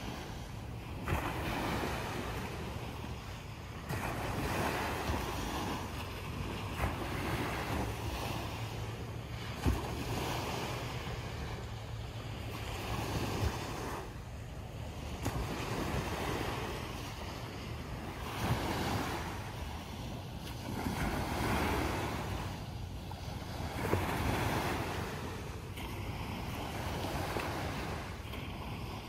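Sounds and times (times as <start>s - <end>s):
waves breaking on beach: 0.0s - 29.0s.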